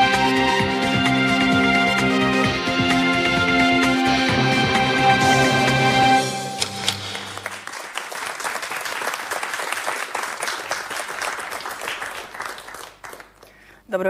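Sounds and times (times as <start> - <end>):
theme music: 0.0 - 7.8
audience applauding: 6.5 - 13.7.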